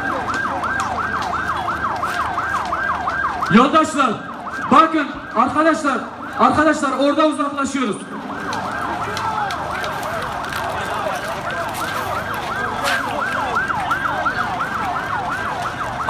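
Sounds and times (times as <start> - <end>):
emergency siren fast yelp: 0.0 - 16.0.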